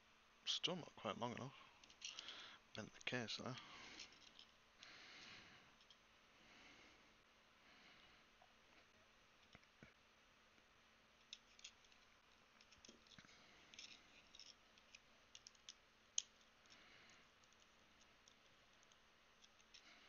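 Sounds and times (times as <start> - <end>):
small tools clicking and tapping: 11.2 - 16.8, 17.4 - 20.0.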